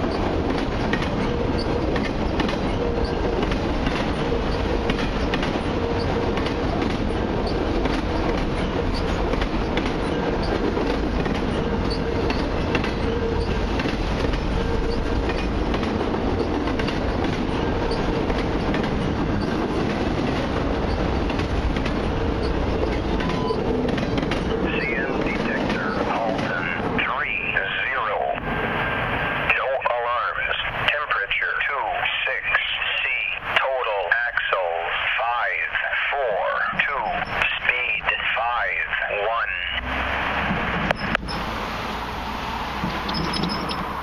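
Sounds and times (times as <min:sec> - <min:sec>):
train wheels rumbling and clattering: 0:00.0 - 0:35.8, 0:36.4 - 0:38.9, 0:39.7 - 0:44.0
train wheel squeal: 0:00.9 - 0:15.6, 0:16.4 - 0:19.7, 0:21.9 - 0:26.3, 0:40.9 - 0:41.6, 0:42.3 - 0:44.0.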